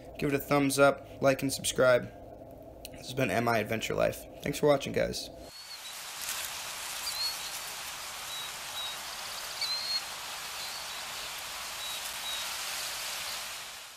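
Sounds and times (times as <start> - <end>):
steady rain-like hiss: 0.0 - 13.9
birds chirping: 5.5 - 13.9.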